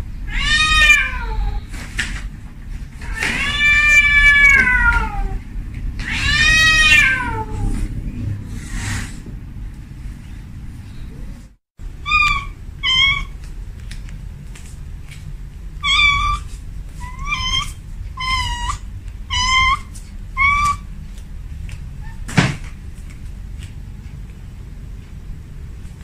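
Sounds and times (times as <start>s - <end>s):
kitten mewing: 12.0s - 13.4s, 15.8s - 20.9s.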